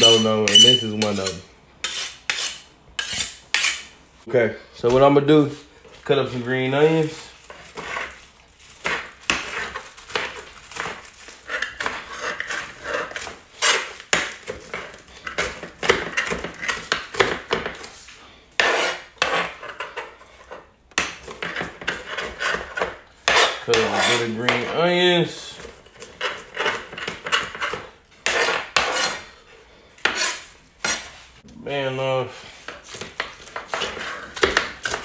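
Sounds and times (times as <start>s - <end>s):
knife chopping on tile countertop: 8.8s - 17.9s, 18.6s - 24.8s, 26.0s - 29.3s, 32.7s - 35.0s.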